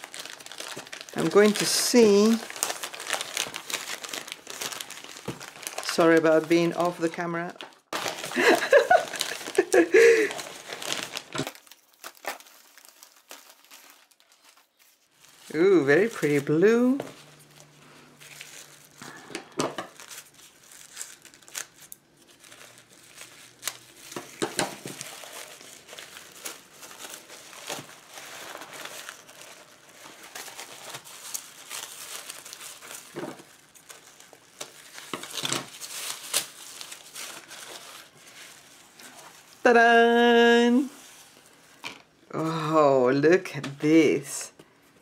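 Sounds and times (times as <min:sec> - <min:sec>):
tissue paper crinkling: 0:00.0 - 0:41.9.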